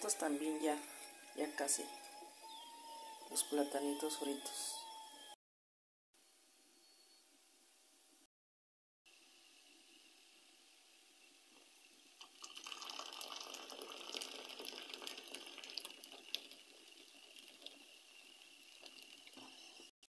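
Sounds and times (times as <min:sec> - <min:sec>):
tea pouring into a cup: 0:12.2 - 0:19.9.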